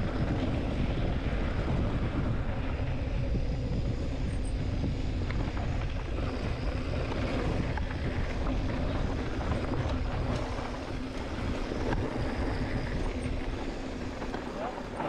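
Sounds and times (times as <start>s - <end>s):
bike clicks and rattles: 0.0s - 15.0s
wind rumble on microphone: 0.0s - 15.0s.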